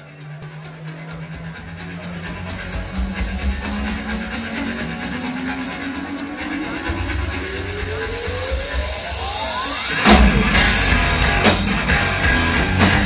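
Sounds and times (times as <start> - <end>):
rock band playing: 0.0 - 13.0
tone rising in pitch: 1.9 - 12.0.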